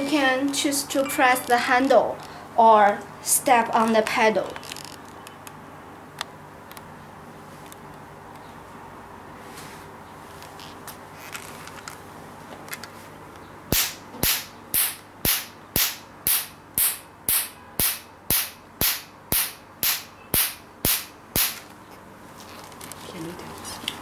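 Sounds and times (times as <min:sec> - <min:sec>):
laser handpiece snapping pulses: 0:13.7 - 0:21.6.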